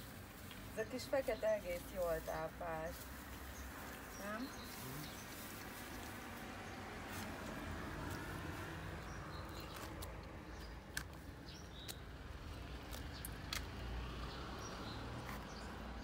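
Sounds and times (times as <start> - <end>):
cats chewing food: 3.0 - 13.8.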